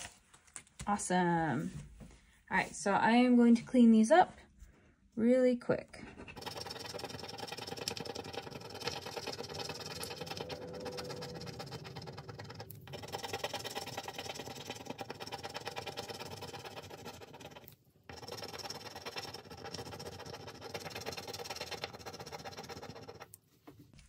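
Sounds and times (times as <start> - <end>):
fingernail scratching scratch card: 6.1 - 23.4.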